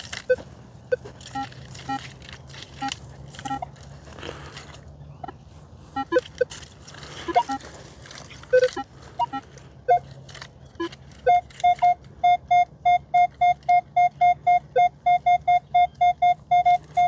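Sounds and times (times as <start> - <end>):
metal detector beeps: 0.0 - 2.1, 2.8 - 3.7, 6.0 - 6.6, 7.2 - 7.6, 8.5 - 10.1, 10.8 - 17.0
metal detector tones: 0.0 - 3.8, 6.0 - 6.6, 7.2 - 7.6, 8.4 - 17.0.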